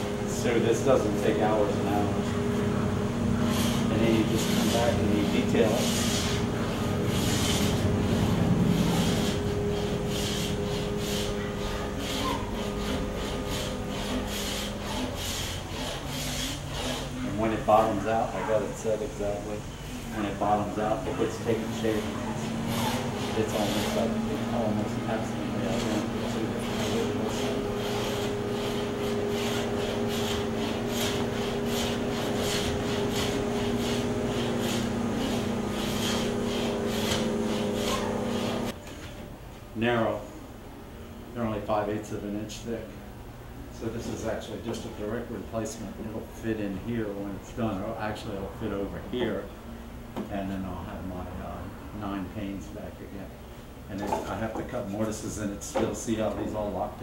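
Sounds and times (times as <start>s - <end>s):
low hum: 0.0s - 17.3s
scraper rasping on wood: 3.4s - 19.0s, 20.2s - 38.8s.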